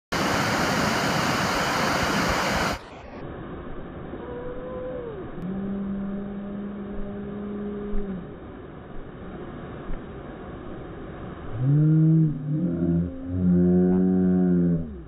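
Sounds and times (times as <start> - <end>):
water rushing over weir: 0.1 - 15.0
low drawn-out sliding tone: 3.1 - 15.0.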